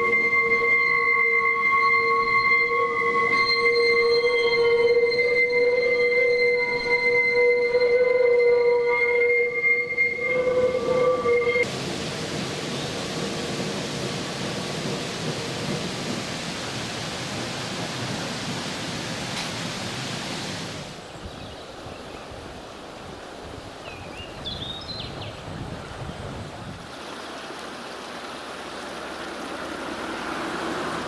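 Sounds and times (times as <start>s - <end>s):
tram wheels squealing: 0.0s - 11.7s
steady rushing noise: 28.7s - 31.0s.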